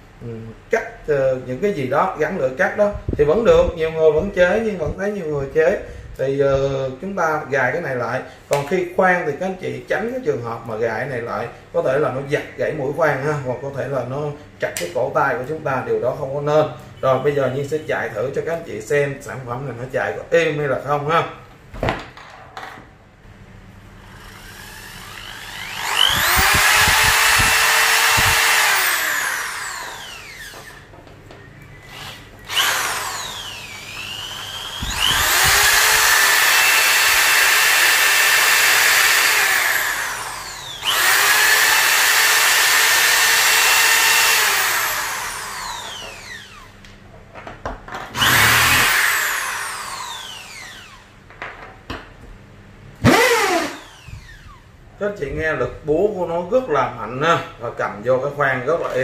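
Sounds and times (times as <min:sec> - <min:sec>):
hammer drill motor whining: 0:24.0 - 0:30.9, 0:31.7 - 0:46.8, 0:48.1 - 0:51.1, 0:53.0 - 0:54.7.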